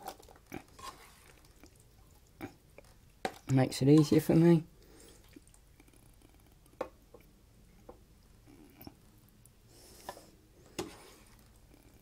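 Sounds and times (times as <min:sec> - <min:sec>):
spatula scraping: 0:00.0 - 0:01.5, 0:09.9 - 0:11.6.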